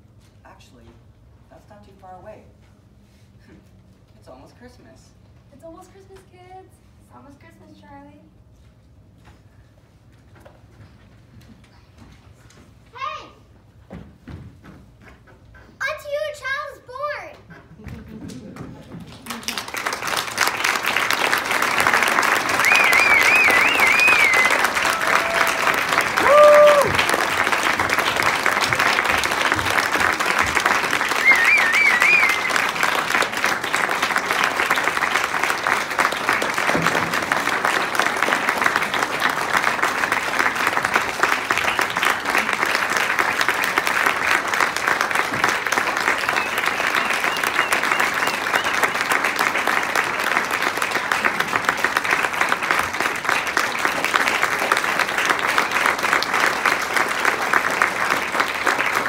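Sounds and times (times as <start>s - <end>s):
audience applauding: 18.6s - 59.0s
person whooping: 22.6s - 27.2s, 31.2s - 32.6s.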